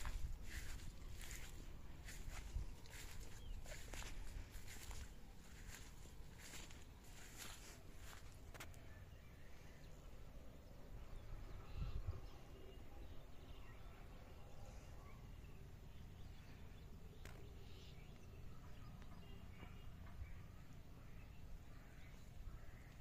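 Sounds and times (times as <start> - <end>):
faint bird chirps: 11.0 - 23.0.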